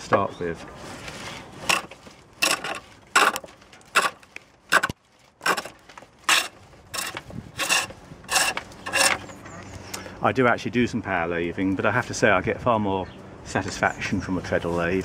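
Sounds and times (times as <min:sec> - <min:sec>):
gouge rasping on wood: 0:01.6 - 0:09.2.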